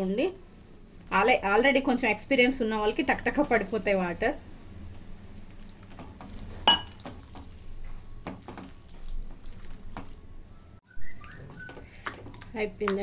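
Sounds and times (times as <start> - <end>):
wet batter squelching: 0.0 - 4.4, 5.2 - 10.4.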